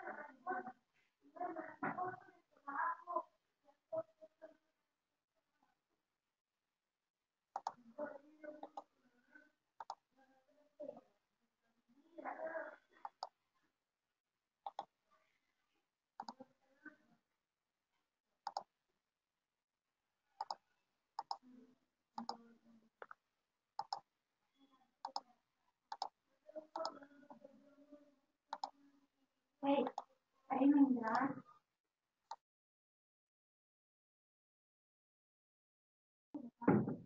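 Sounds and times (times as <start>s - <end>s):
computer mouse button clicking: 7.6s - 7.8s, 8.6s - 8.9s, 9.8s - 10.0s, 13.0s - 13.3s, 14.7s - 14.9s, 18.5s - 18.7s, 20.4s - 20.6s, 21.2s - 21.4s, 23.8s - 24.0s, 25.0s - 25.2s, 25.9s - 26.1s, 26.8s - 27.0s, 28.5s - 28.7s, 29.8s - 30.1s.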